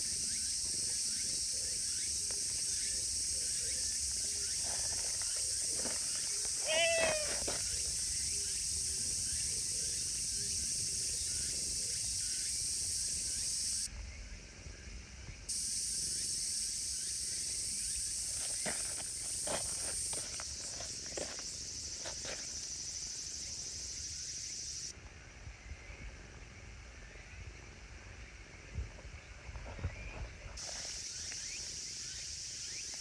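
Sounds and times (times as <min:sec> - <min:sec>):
high-pitched insect chorus: 0:00.0 - 0:33.0.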